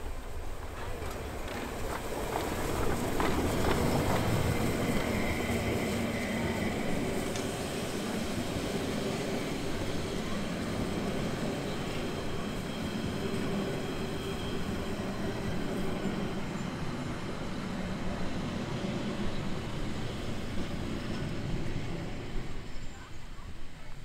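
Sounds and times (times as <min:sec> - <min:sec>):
train wheels clicking over rail joints: 0:00.3 - 0:07.9.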